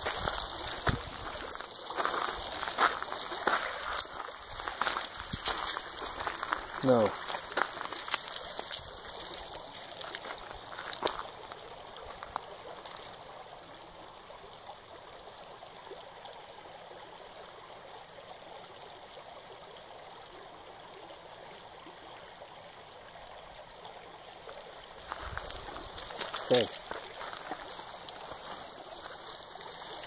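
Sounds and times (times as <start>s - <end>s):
creek water babbling over stones: 0.0s - 30.0s.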